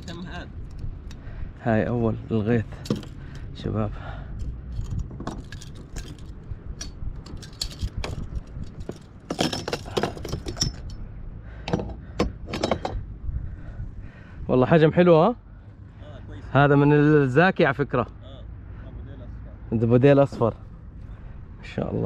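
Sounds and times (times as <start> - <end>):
steady low rumble: 0.0 - 22.0
metal fishing tackle clinking: 4.7 - 11.0.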